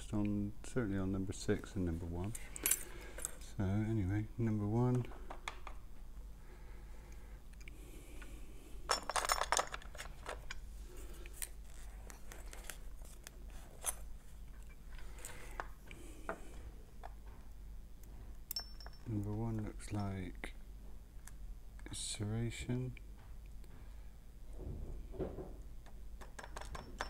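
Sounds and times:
metal tools clicking and clinking: 0:02.4 - 0:03.4, 0:08.9 - 0:10.6, 0:18.5 - 0:20.3, 0:26.2 - 0:27.0.

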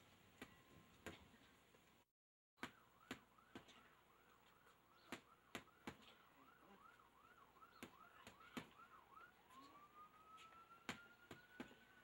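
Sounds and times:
faint emergency siren: 0:02.6 - 0:12.0.

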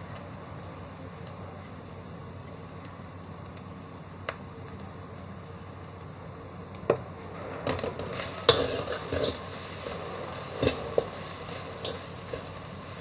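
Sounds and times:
steady low hum: 0:00.0 - 0:13.0
metal spatula scraping a wok: 0:08.1 - 0:12.6.

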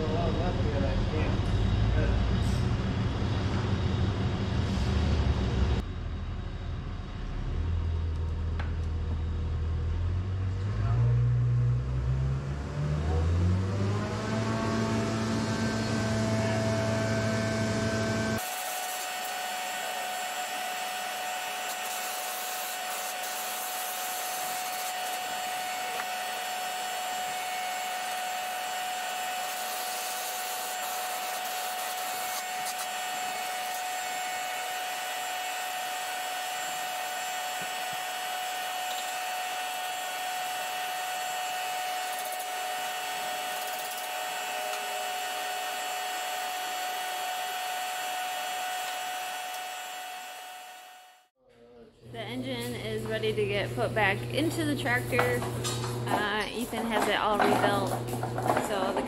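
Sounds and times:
low rumble: 0:00.0 - 0:13.4
machine motor spinning up: 0:01.4 - 0:51.3.

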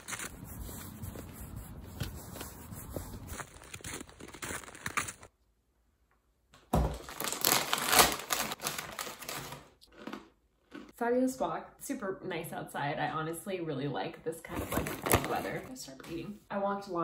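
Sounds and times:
plastic bag crinkling and tearing: 0:00.0 - 0:00.4, 0:03.1 - 0:05.3, 0:06.9 - 0:10.2
footsteps crunching through snow: 0:00.0 - 0:05.3.

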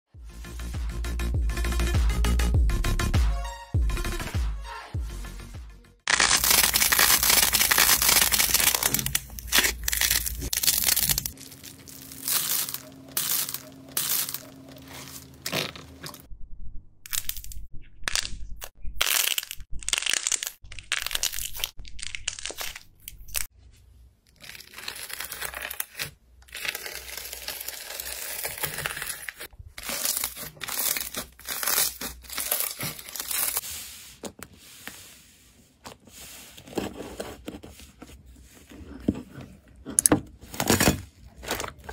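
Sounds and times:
hands squeezing crackling slime: 0:06.1 - 0:14.4.

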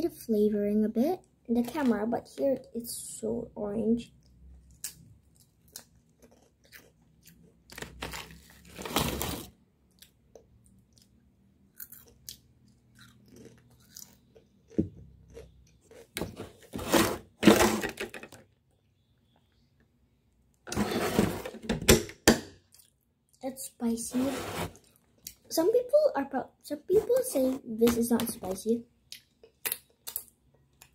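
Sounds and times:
chewing crunchy chips: 0:04.6 - 0:08.8, 0:09.9 - 0:16.1.

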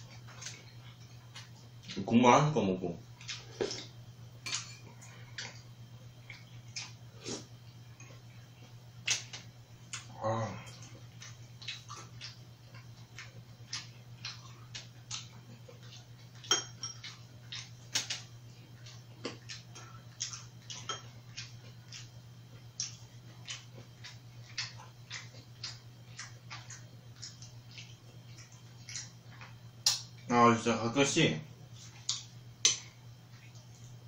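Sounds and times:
chewing: 0:00.0 - 0:02.0, 0:03.1 - 0:30.3, 0:31.7 - 0:34.0
low steady hum: 0:00.0 - 0:34.0
chopsticks clinking on bowls: 0:16.4 - 0:17.2, 0:20.7 - 0:21.5.

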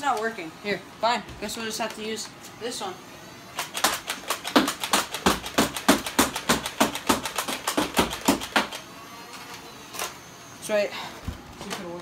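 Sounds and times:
toy blaster firing foam darts: 0:03.5 - 0:10.3.

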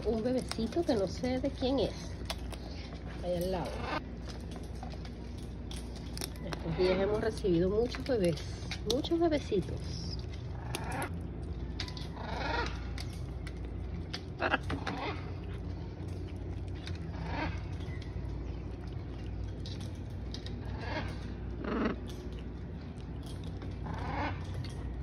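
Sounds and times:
macaws harsh calls: 0:12.0 - 0:13.0, 0:14.4 - 0:15.4, 0:17.1 - 0:18.0, 0:20.5 - 0:22.1, 0:23.8 - 0:24.9.

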